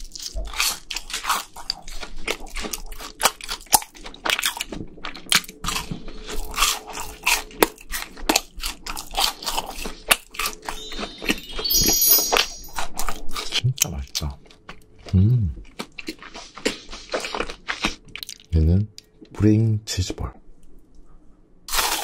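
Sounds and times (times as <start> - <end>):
crisp chewing crunches: 0.0 - 11.5, 13.0 - 18.6, 21.7 - 22.0
twinkling chime effect: 10.6 - 13.0.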